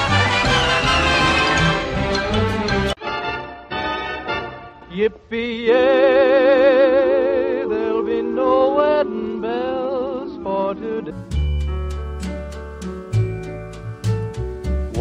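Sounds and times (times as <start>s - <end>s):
person singing with vibrato: 4.9s - 11.4s
music with heavy bass: 11.1s - 15.0s.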